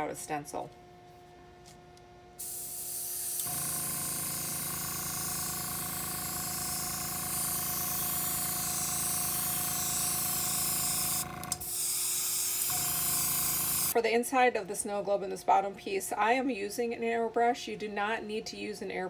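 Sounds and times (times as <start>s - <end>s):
compressor humming: 0.0s - 14.0s
airbrush hissing: 2.4s - 14.0s.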